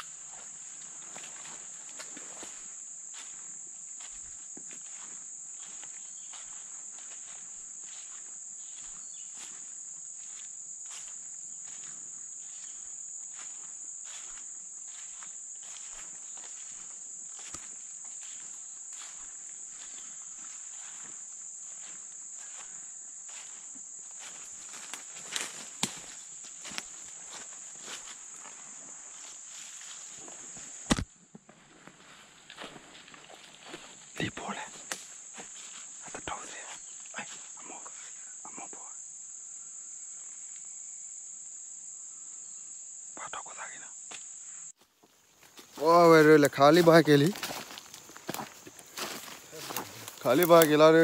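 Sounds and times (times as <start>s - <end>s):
footsteps crunching dry leaves: 0.0s - 31.0s, 31.6s - 37.6s, 44.8s - 51.0s
high-pitched insect chorus: 0.0s - 51.0s
sharp snaps of twigs: 24.8s - 26.1s, 34.8s - 35.2s.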